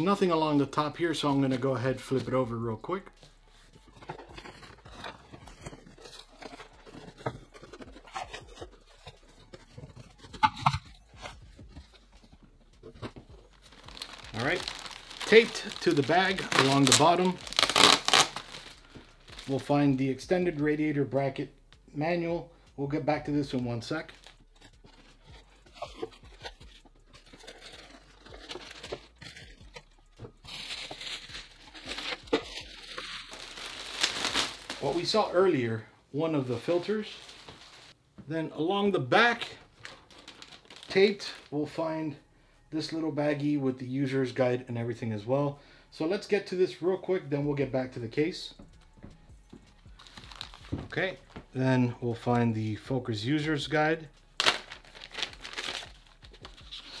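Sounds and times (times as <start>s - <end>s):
plastic and foam crinkling: 0.0s - 21.4s, 22.1s - 38.0s, 39.1s - 41.8s, 47.8s - 57.0s
cardboard scraping and rustling: 3.9s - 18.6s.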